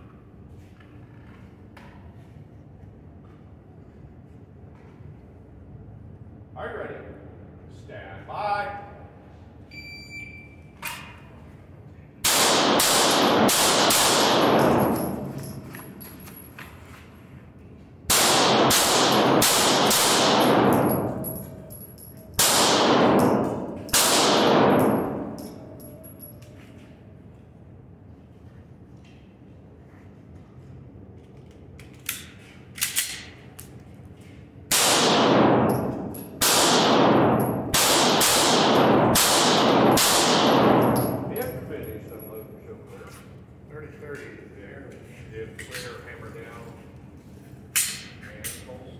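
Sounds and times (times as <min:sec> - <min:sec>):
pistol shots echoing indoors: 0:12.2 - 0:16.4, 0:18.0 - 0:26.4, 0:34.7 - 0:42.4.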